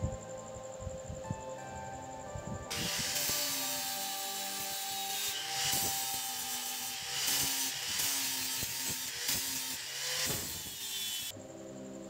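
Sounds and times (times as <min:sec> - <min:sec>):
angle grinder sanding wood: 0:02.7 - 0:11.3.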